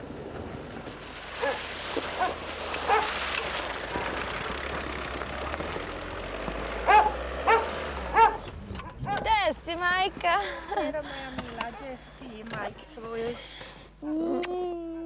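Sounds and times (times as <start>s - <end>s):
car driving through snow: 0.0s - 10.4s
dog barking: 1.4s - 1.6s, 2.2s - 3.2s, 6.8s - 9.3s.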